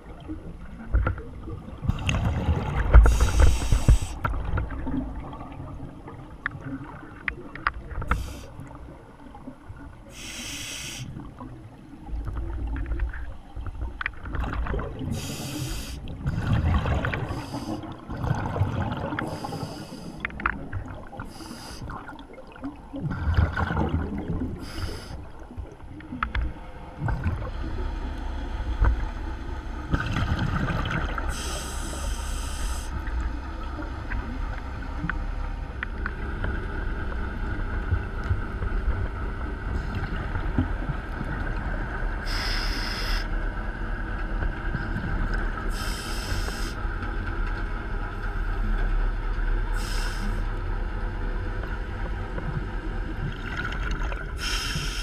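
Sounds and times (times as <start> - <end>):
hissing regulator inhalation: 3.1 - 4.2, 10.2 - 11.1, 19.3 - 20.2, 24.6 - 25.2, 42.3 - 43.3, 54.4 - 55.0.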